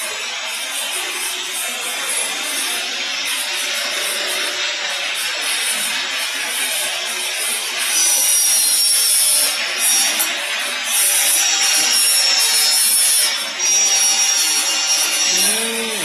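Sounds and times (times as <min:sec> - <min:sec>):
filling machine hissing: 0:14.8 - 0:16.0.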